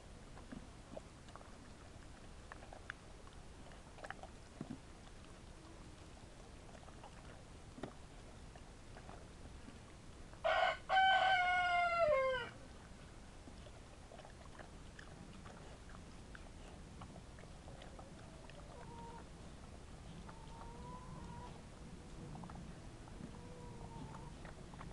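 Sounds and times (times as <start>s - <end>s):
rooster crowing: 10.4s - 12.6s.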